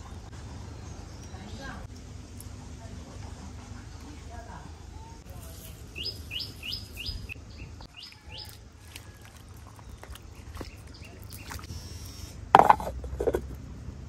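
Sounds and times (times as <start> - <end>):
wooden spatula stirring in clay pot: 8.8 - 11.7, 12.6 - 13.6.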